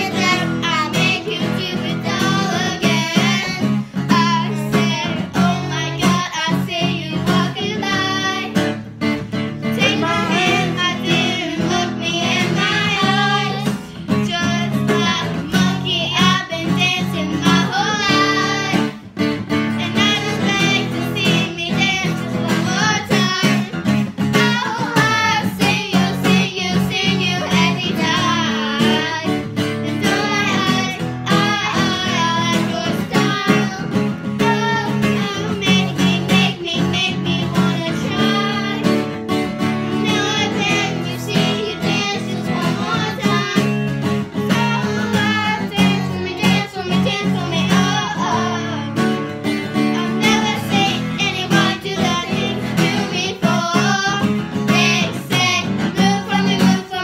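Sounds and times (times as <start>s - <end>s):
girls singing pop song: 0.0s - 57.0s
strummed acoustic guitar: 0.0s - 57.0s.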